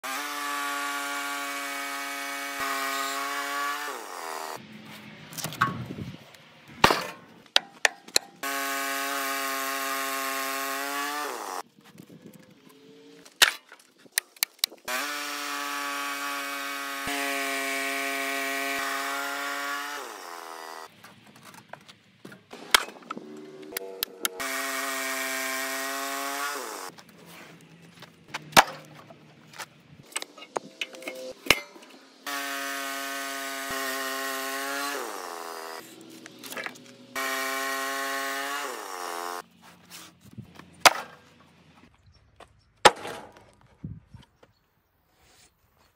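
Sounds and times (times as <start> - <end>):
bandsaw sawmill whining: 0.0 - 4.6, 8.4 - 11.6, 14.9 - 20.9, 22.5 - 27.0, 30.1 - 40.1
wooden slabs knocking and thudding: 40.8 - 41.2, 42.8 - 43.7.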